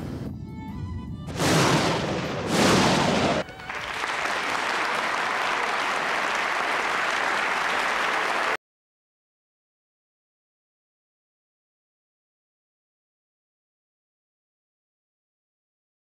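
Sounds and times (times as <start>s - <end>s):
thunder claps: 1.2s - 4.2s
large audience applauding: 3.0s - 8.6s.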